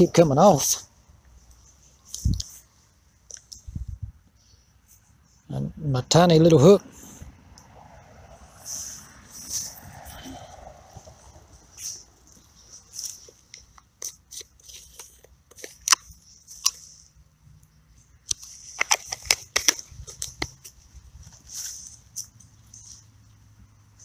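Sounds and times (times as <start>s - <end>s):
jacket fabric rustling: 8.6s - 17.2s, 18.4s - 24.0s
plastic container clicking: 18.7s - 20.6s.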